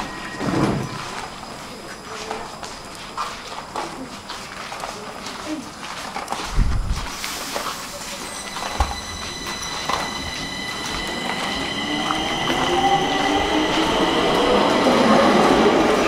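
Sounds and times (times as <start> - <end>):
high-pitched ringing tones: 0.0 - 2.6, 7.6 - 15.4
metro train pulling away: 0.0 - 3.0, 7.1 - 16.0.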